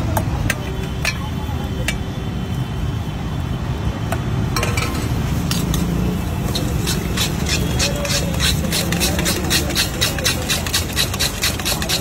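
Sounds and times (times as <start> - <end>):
street traffic rumble: 0.0 - 12.0
utensils clinking in steel bowl: 6.5 - 12.0.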